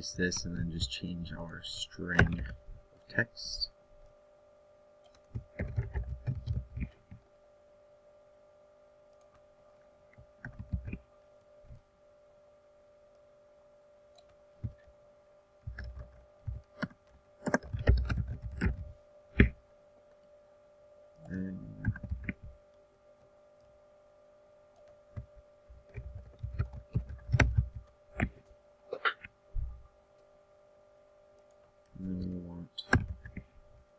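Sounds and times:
electrical hum: 0.0 - 33.9
keyboard typing: 10.4 - 11.0, 15.7 - 19.6, 25.9 - 28.3.

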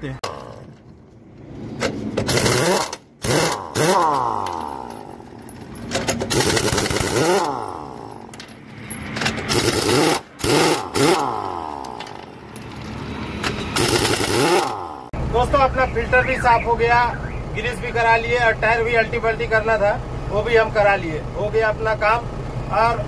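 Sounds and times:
pneumatic impact wrench hammering: 1.7 - 15.1.

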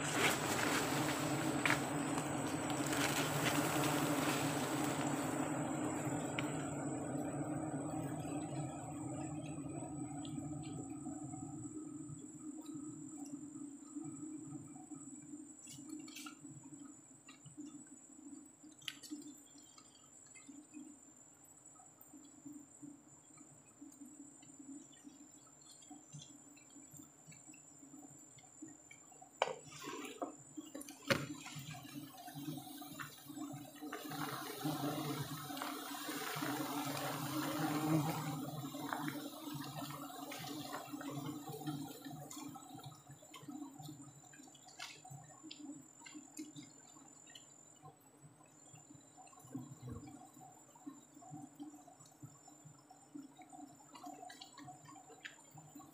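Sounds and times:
bees humming: 0.0 - 12.0, 29.7 - 44.7.

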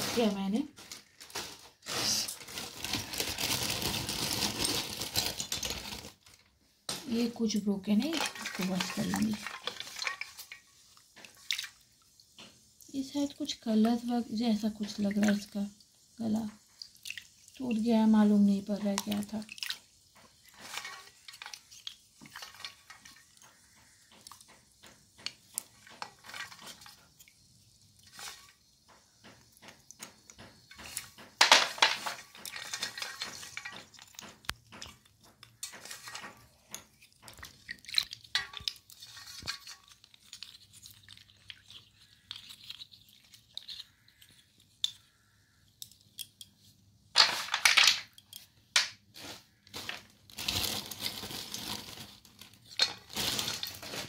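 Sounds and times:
water dripping and swishing: 7.1 - 31.3, 32.1 - 44.3.

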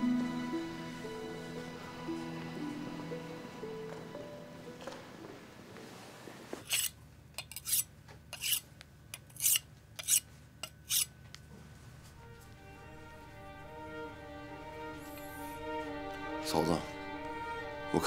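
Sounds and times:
faint music: 0.0 - 6.9, 9.4 - 18.0
knife rasping on sharpening stone: 6.7 - 8.6, 9.2 - 11.1.

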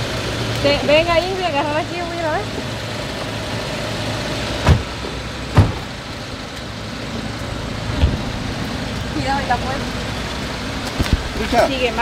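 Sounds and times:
vehicle engine idling: 0.0 - 12.0
sharp thumps: 4.6 - 6.1, 7.8 - 8.7.

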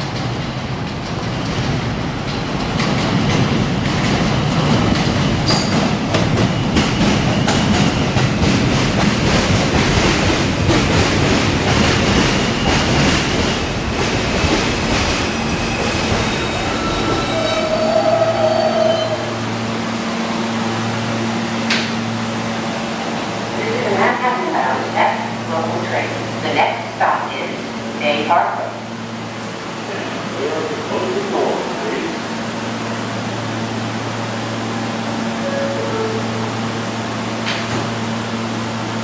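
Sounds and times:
train wheels squealing: 15.0 - 19.3.

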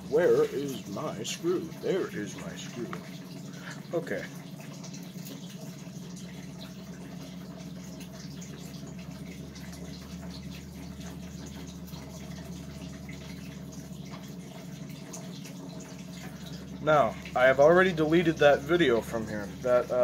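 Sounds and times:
electric fan humming and whirring: 0.0 - 20.0.

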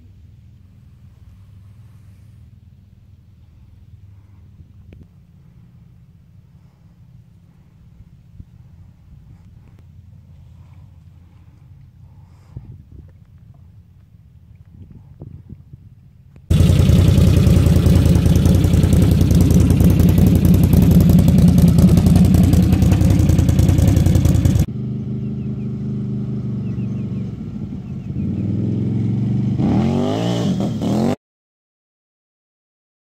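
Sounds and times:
atv engine running: 16.5 - 30.0.

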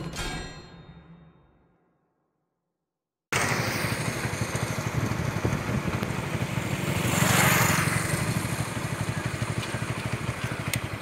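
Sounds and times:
motorcycle engine passing: 3.4 - 11.0.

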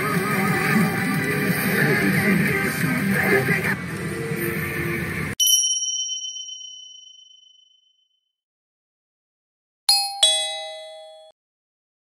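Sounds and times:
bright ding chime: 5.4 - 7.8, 9.9 - 11.4
two-note falling ding-dong: 9.9 - 11.4.

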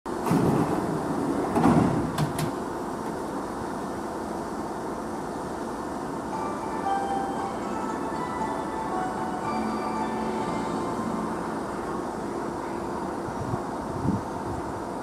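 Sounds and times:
electric train humming: 0.1 - 15.0
station melody: 6.3 - 11.9.

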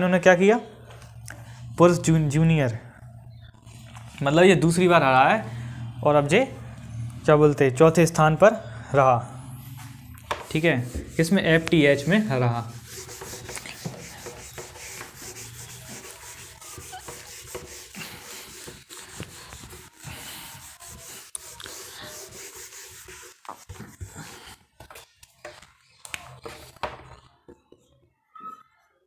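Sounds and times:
scratchy rubbing and scraping: 9.8 - 25.6.

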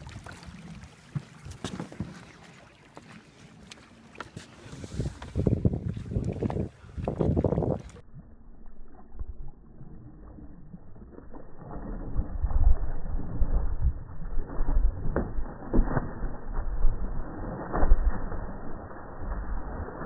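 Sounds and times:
wind rumbling on microphone: 4.6 - 8.0, 8.6 - 20.0
fish thrashing and water splashing: 9.5 - 20.0.

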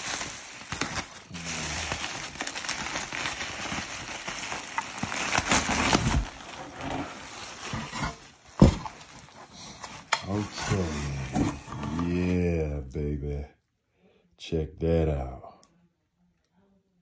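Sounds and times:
bubble wrap crinkling: 0.0 - 12.2.

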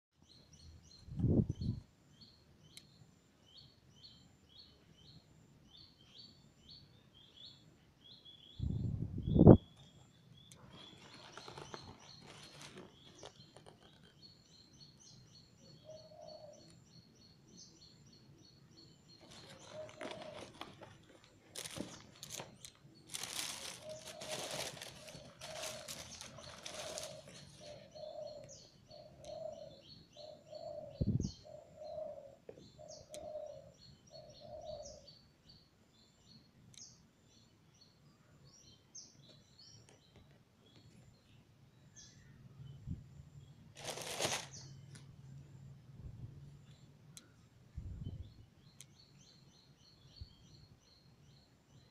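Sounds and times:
small birds chirping: 0.2 - 51.9
paper and plastic wrapping rustling: 10.6 - 14.1, 19.2 - 27.8, 43.8 - 44.7
low bird call: 19.2 - 35.1.

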